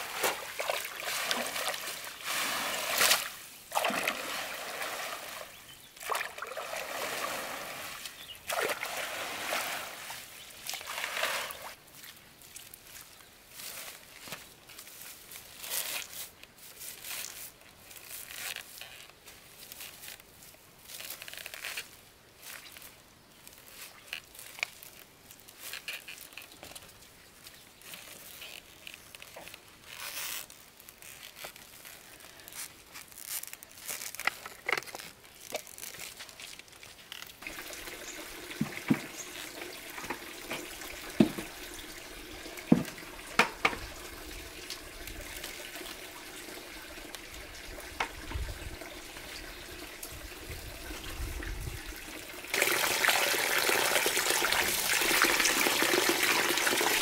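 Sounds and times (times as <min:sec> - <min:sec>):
steady running water: 0:00.0 - 0:12.2, 0:37.1 - 0:57.0
water trickling and splashing: 0:00.0 - 0:16.2, 0:20.9 - 0:57.0.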